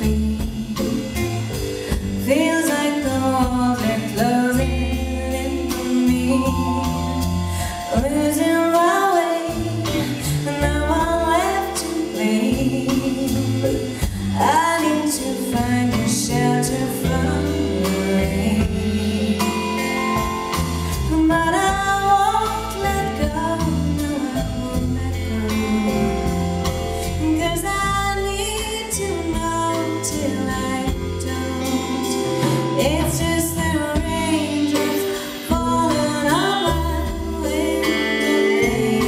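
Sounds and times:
bass guitar: 0.0s - 39.0s
drums: 0.0s - 39.0s
woman singing lead: 0.0s - 39.0s.

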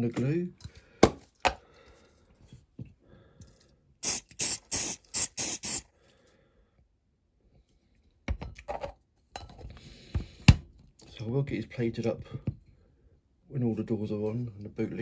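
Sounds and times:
hissing spray bursts: 4.0s - 5.9s.

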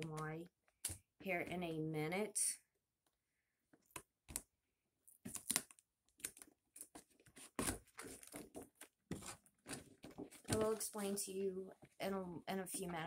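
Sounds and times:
cardboard rustling: 5.2s - 11.2s.

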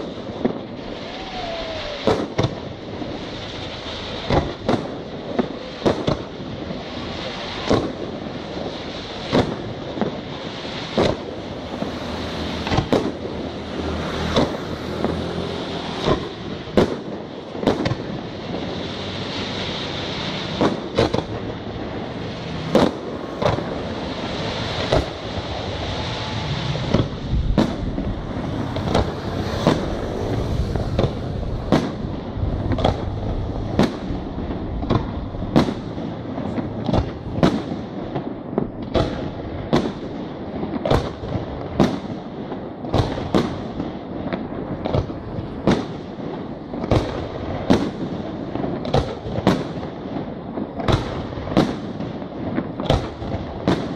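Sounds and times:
hiss of burning fireworks: 0.0s - 53.9s
firework shells bursting: 9.3s - 15.2s, 20.2s - 40.0s.

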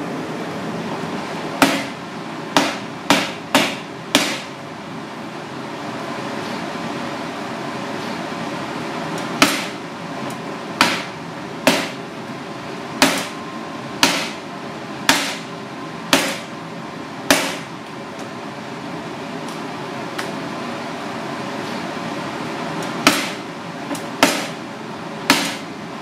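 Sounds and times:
knife chopping on plastic board: 2.6s - 4.5s, 14.0s - 14.4s.

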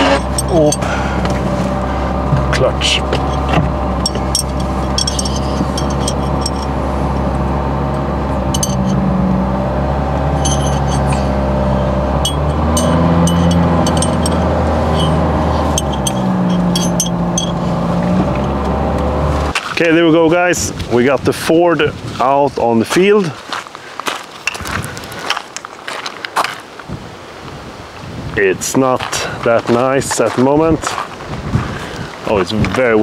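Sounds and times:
car engine running: 0.0s - 19.6s.

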